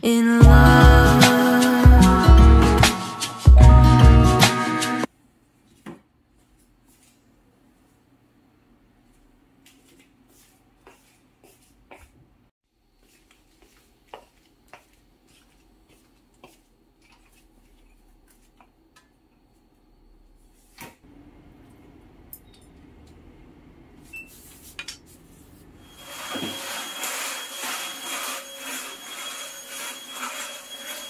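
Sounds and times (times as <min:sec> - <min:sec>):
footsteps tapping on tiled floor: 0:10.8 - 0:12.3, 0:13.0 - 0:19.2.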